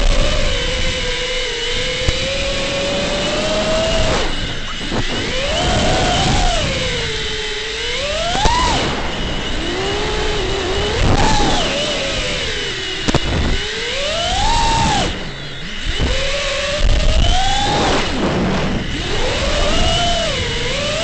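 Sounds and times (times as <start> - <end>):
drone motors whining: 0.0 - 21.0
wind noise: 0.0 - 21.0
sharp clicks: 13.0 - 13.6.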